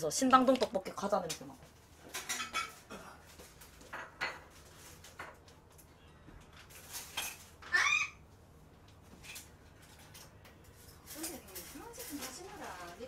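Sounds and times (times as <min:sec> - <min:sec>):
faint knocks and clicks in kitchen: 0:00.4 - 0:07.4.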